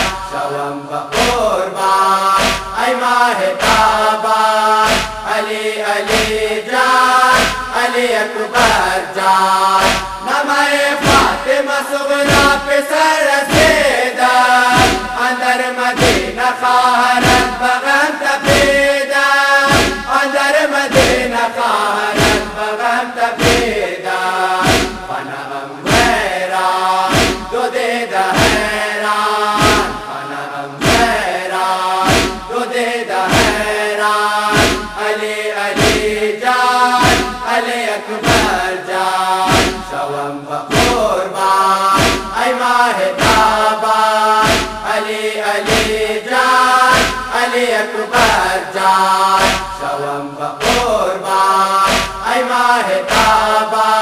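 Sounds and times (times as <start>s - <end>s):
deep chest-striking thumps: 0.0s - 0.4s, 1.2s - 1.6s, 2.4s - 2.8s, 3.6s - 4.0s, 4.8s - 5.3s, 6.1s - 6.5s, 7.3s - 7.8s, 9.8s - 10.2s, 11.0s - 11.5s, 12.3s - 12.7s, 13.5s - 14.0s, 14.8s - 15.2s, 16.0s - 16.4s, 17.2s - 17.6s, 18.5s - 18.9s, 19.7s - 20.1s, 20.9s - 21.3s, 22.2s - 22.6s, 23.4s - 23.8s, 24.6s - 25.1s, 25.9s - 26.3s, 27.1s - 27.6s, 28.4s - 28.8s, 29.6s - 30.1s, 30.8s - 31.3s, 32.0s - 32.5s, 33.3s - 33.7s, 34.5s - 35.0s, 35.8s - 36.2s, 37.0s - 37.5s, 38.2s - 38.7s, 39.5s - 39.9s, 40.7s - 41.1s, 41.9s - 42.4s, 43.2s - 43.6s, 44.4s - 44.9s, 45.6s - 46.0s, 46.9s - 47.4s, 49.4s - 49.8s, 50.6s - 51.0s, 51.8s - 52.3s, 53.1s - 53.5s
male chorus chanting: 0.0s - 54.0s.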